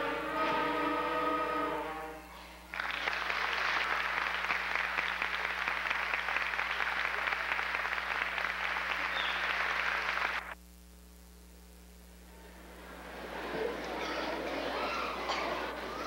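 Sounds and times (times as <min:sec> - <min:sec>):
audience applauding: 0:02.7 - 0:10.6, 0:12.5 - 0:16.0.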